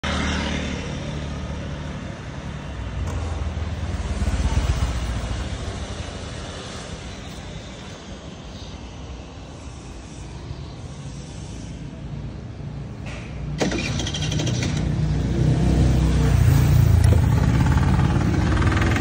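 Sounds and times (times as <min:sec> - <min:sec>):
scooter engine idling: 0:16.8 - 0:19.0.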